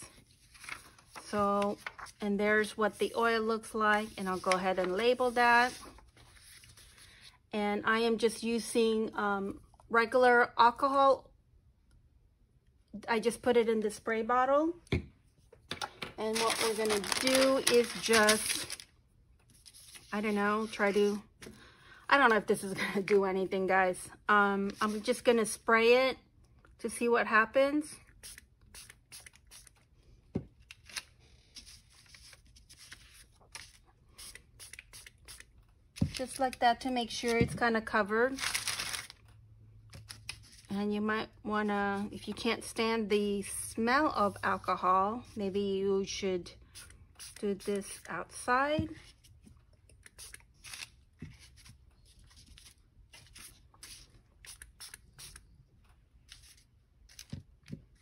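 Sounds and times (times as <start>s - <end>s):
paper rustling: 0.1s - 2.2s, 3.9s - 7.2s, 16.3s - 18.9s, 19.5s - 21.2s, 38.3s - 39.2s.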